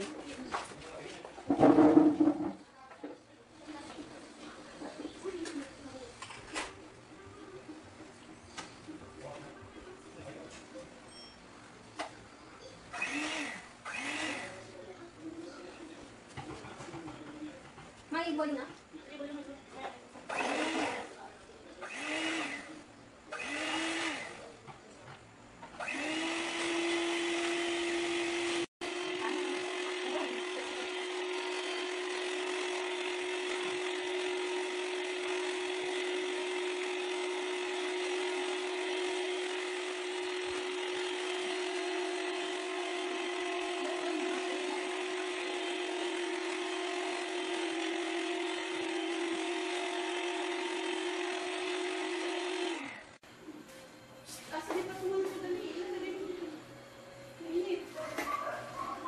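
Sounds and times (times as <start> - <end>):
electric hand mixer whisking: 13.0 - 14.6, 20.3 - 21.1, 21.8 - 24.5, 25.8 - 53.2.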